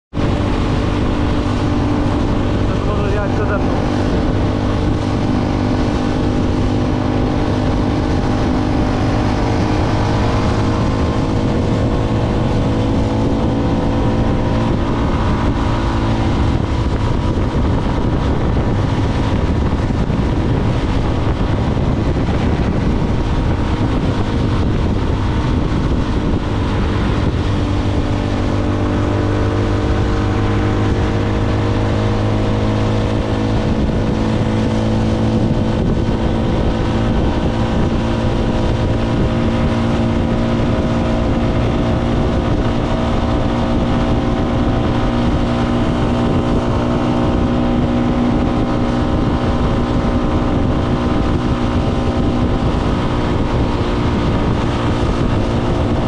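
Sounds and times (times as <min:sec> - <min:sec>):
low rush of noise: 0:00.1 - 0:56.0
motorcycle engine running: 0:00.1 - 0:56.0.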